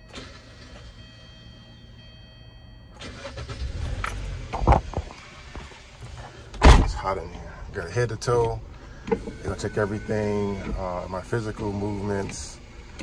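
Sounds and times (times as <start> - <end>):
car engine starting and running: 0.0 - 13.0
loud thump: 4.5 - 5.1, 6.6 - 7.1.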